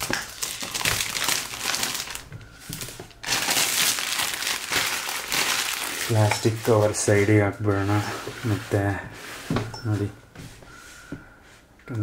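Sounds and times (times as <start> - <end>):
plastic wrapping crinkling: 0.0 - 8.1.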